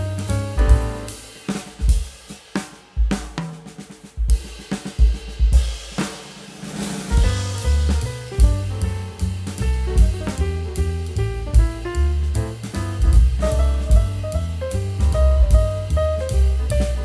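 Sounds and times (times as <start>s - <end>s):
bass line: 0.0s - 1.3s, 7.2s - 17.0s
drum kit playing a steady beat: 0.0s - 17.0s.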